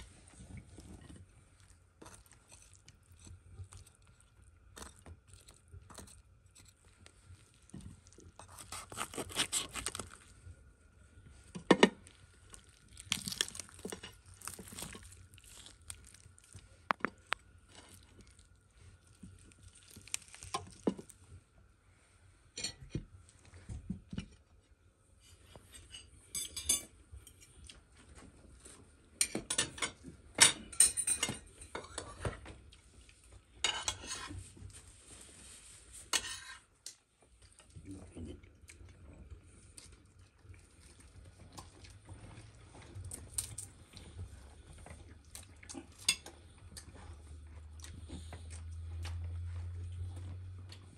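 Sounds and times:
cutlery clinking on plates: 29.2s - 32.2s.

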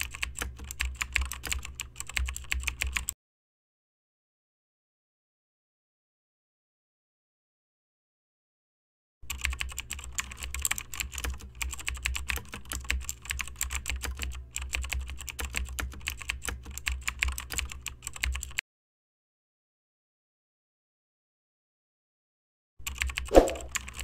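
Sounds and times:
fast keyboard typing: 0.0s - 3.2s, 9.3s - 18.6s, 22.8s - 24.0s.

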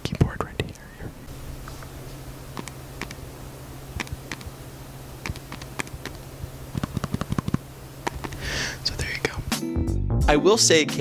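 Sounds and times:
steady low hum: 0.0s - 10.2s
keyboard key clicks: 5.2s - 6.2s, 6.8s - 8.4s.

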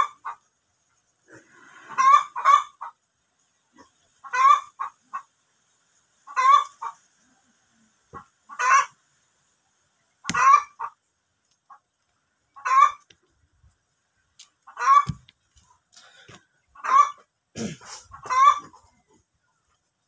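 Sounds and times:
chicken clucking: 0.0s - 0.5s, 1.3s - 3.1s, 3.7s - 5.4s, 6.2s - 9.0s, 10.2s - 11.9s, 12.5s - 13.3s, 14.4s - 19.9s.

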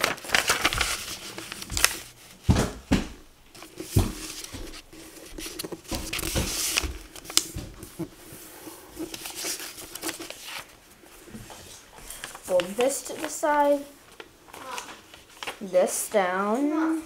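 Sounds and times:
paper rustling and scraping: 0.0s - 2.5s, 3.5s - 15.7s.

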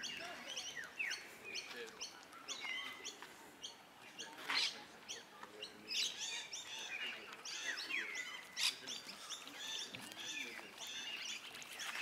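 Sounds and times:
birds chirping: 0.0s - 12.0s
harsh bird call or rustle: 6.3s - 12.0s.

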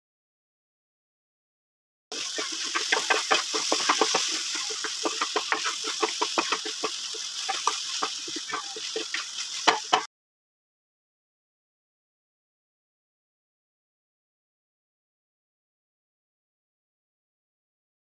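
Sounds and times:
spatula scraping pan: 2.1s - 10.1s
vegetables sizzling in oil: 2.1s - 10.1s.

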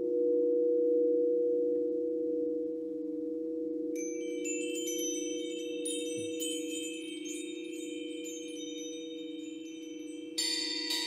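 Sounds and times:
singing bowls low tones: 0.0s - 11.0s
wind chime tones: 4.0s - 11.0s.

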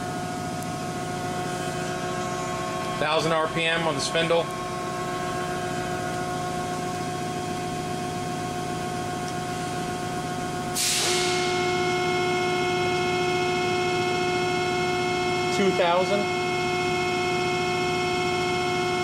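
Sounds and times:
machine spindle hum and whine: 0.0s - 19.0s
short hiss: 10.8s - 11.2s.

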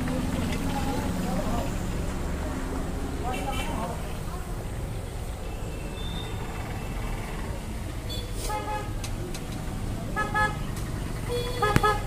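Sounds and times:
low traffic rumble: 0.0s - 12.0s
vehicle horns tooting: 8.0s - 9.0s, 10.1s - 10.6s, 11.3s - 12.0s.

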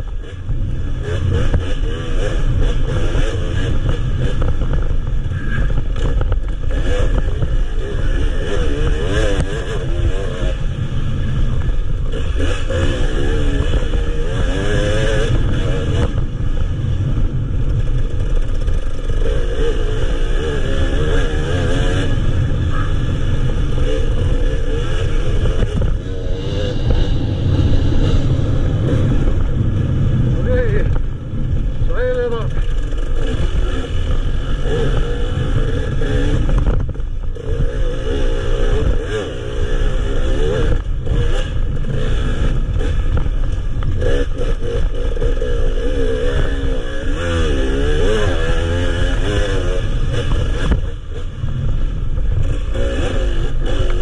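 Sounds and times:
motorcycle engine revving: 0.0s - 54.0s
rumble of wind: 0.0s - 54.0s
knocks from motorcycle: 25.6s - 26.0s, 36.5s - 37.1s.

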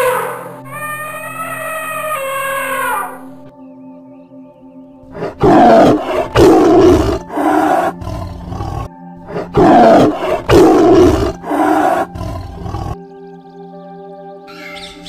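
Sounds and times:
tiger roaring: 5.1s - 13.0s.

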